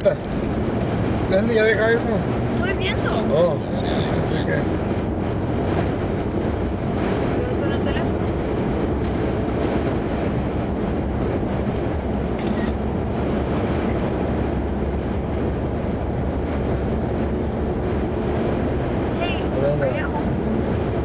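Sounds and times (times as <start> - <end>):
car road and engine rumble: 0.0 - 21.0.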